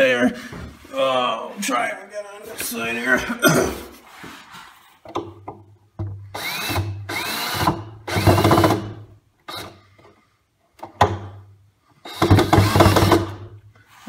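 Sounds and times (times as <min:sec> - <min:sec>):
drill driving screws into wood: 0:06.3 - 0:09.8, 0:12.0 - 0:13.5.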